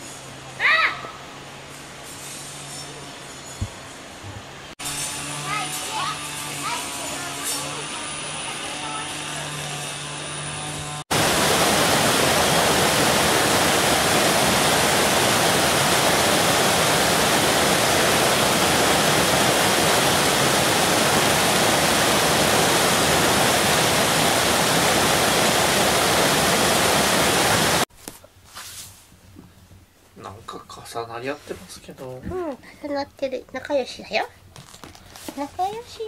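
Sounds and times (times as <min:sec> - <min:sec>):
water rushing over a weir: 0:11.1 - 0:27.9.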